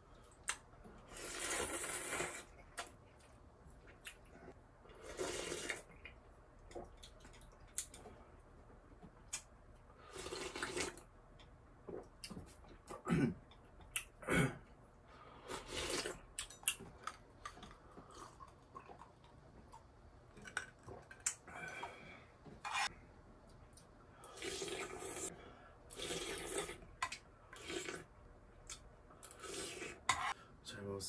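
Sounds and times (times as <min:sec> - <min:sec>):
person slurping broth: 0:01.0 - 0:02.5, 0:04.9 - 0:05.9, 0:10.0 - 0:11.0, 0:15.4 - 0:16.3, 0:24.2 - 0:26.9, 0:27.6 - 0:28.1, 0:29.2 - 0:30.4
slurping noodles: 0:01.0 - 0:02.8, 0:04.9 - 0:05.9, 0:10.0 - 0:11.1, 0:15.4 - 0:16.3, 0:24.2 - 0:27.0, 0:27.6 - 0:28.1, 0:29.2 - 0:30.4.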